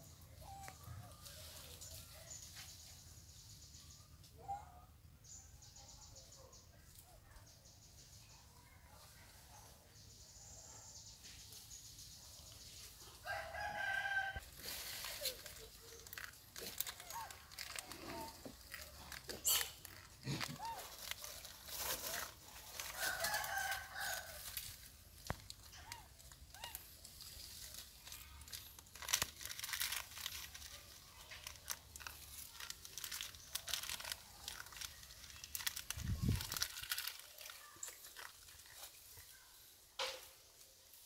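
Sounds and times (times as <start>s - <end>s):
dry noodles crunching: 13.3s - 39.3s
plastic packet crinkling: 14.5s - 39.3s.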